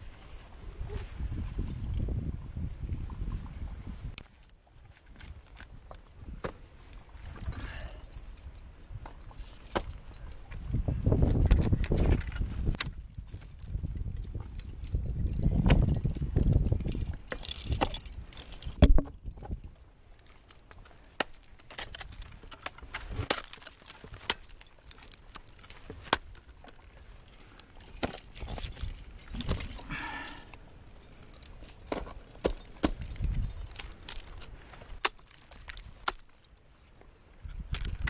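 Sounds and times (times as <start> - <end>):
climbing gear jangling: 0.0 - 2.1, 6.8 - 38.0
ice axe striking ice: 17.2 - 19.6, 21.1 - 26.4, 27.8 - 30.4, 31.7 - 33.4, 34.9 - 36.4.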